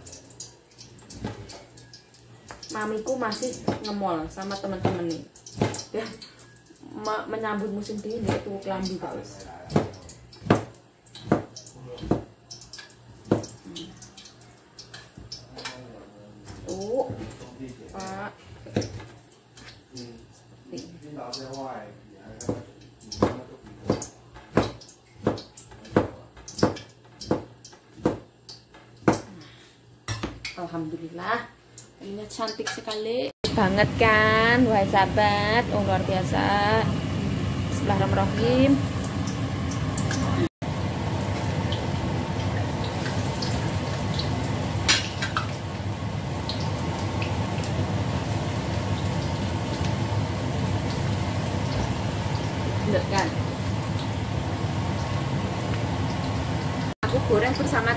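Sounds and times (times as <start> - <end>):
food sizzling in hot oil: 0.0 - 29.2, 30.5 - 57.9
knife knocking on cutting board: 9.7 - 12.3, 22.5 - 28.2.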